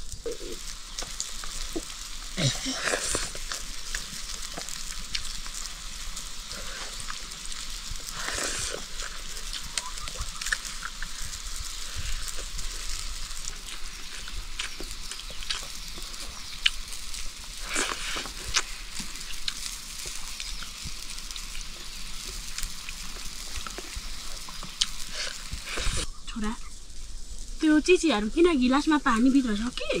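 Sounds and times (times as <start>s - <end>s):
oil popping: 0.0s - 26.1s
food sizzling in hot oil: 0.0s - 30.0s.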